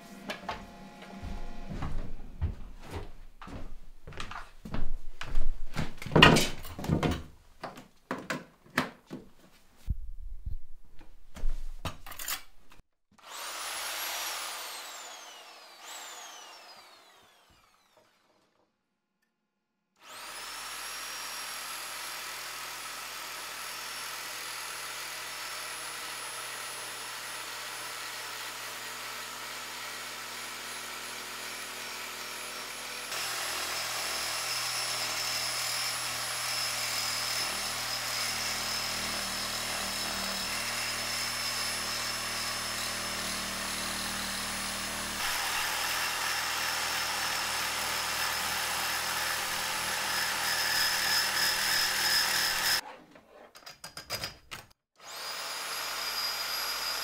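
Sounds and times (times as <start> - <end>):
reciprocating saw cutting iron pipe: 20.1 - 52.8.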